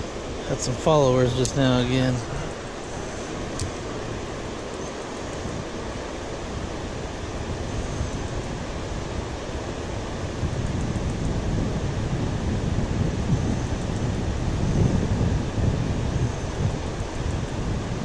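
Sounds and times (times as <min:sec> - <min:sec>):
river water rushing: 0:00.0 - 0:10.4
wind buffeting microphone: 0:00.0 - 0:18.0.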